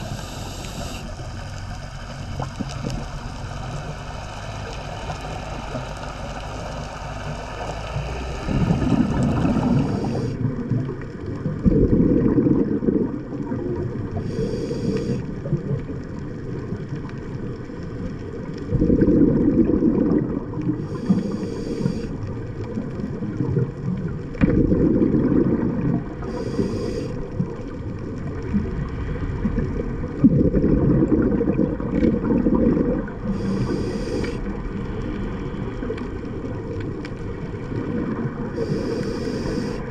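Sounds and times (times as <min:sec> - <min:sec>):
regulator hiss on inhale: 0:00.0 - 0:01.8, 0:03.4 - 0:10.5, 0:14.2 - 0:15.4, 0:20.8 - 0:22.3, 0:26.2 - 0:27.4, 0:33.2 - 0:35.7, 0:38.5 - 0:39.9
exhaled bubbles rumbling: 0:00.0 - 0:39.9.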